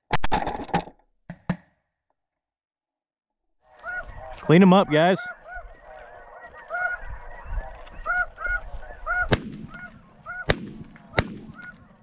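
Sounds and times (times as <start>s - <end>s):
geese honking: 3.7s - 12.0s
shotgun blasts: 9.3s - 12.0s.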